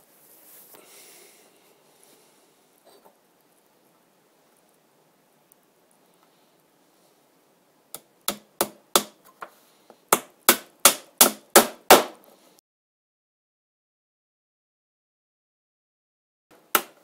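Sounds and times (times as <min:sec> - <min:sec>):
hammer driving nails into wood: 0:08.3 - 0:09.2, 0:10.1 - 0:12.2, 0:16.7 - 0:17.0.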